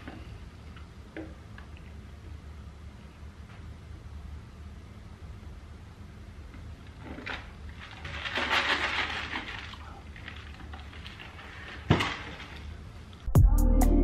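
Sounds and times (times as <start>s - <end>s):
faint steady hum: 0.0s - 14.0s
rustling handling noise: 6.9s - 12.8s.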